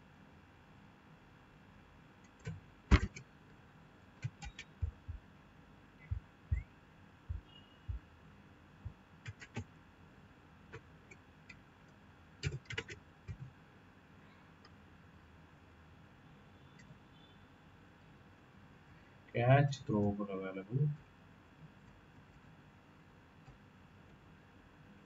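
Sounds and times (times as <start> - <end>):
computer keyboard keystrokes: 2.2 - 3.2, 4.2 - 5.2, 9.2 - 9.7, 12.4 - 13.5
mouse clicks: 4.2 - 5.1.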